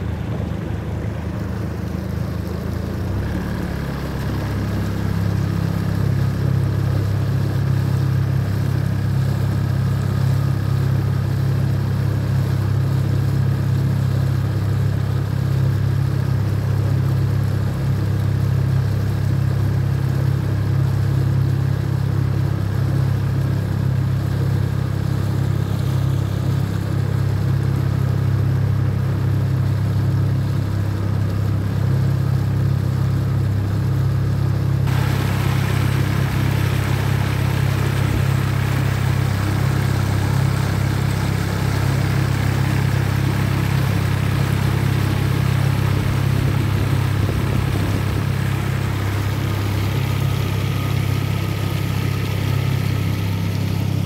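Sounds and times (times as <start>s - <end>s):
outboard motor running: 0.0s - 54.0s
hiss: 34.9s - 43.7s.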